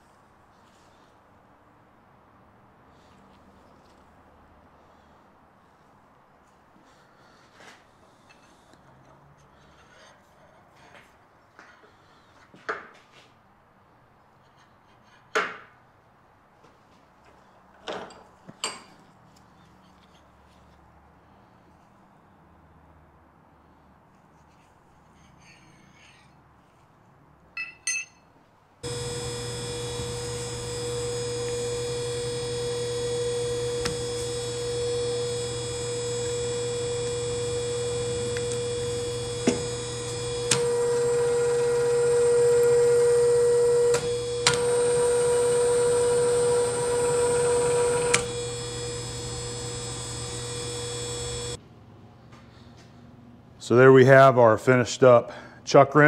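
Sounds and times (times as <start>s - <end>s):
drill press running: 28.8s - 51.6s.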